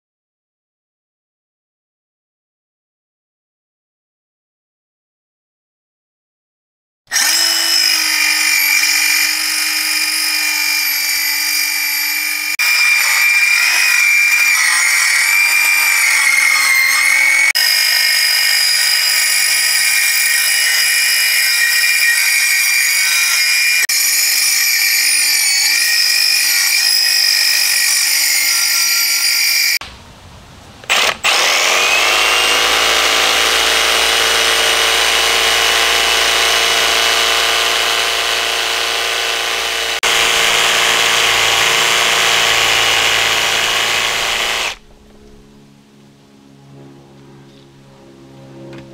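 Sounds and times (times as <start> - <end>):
circular saw cutting wood: 7.1 - 29.8, 30.9 - 44.8
jigsaw running: 7.1 - 29.8, 30.9 - 44.8.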